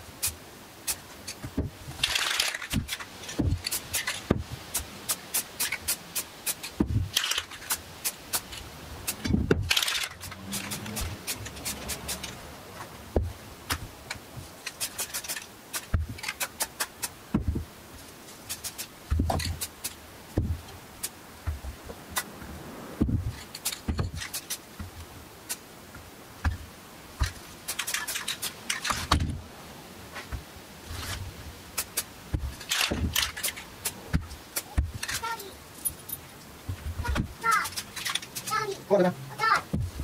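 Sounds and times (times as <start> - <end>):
spray cans clicking and tapping: 0.2 - 12.4, 13.2 - 17.2, 18.3 - 21.6, 23.3 - 24.9, 27.2 - 29.3, 31.8 - 36.2, 37.1 - 38.8.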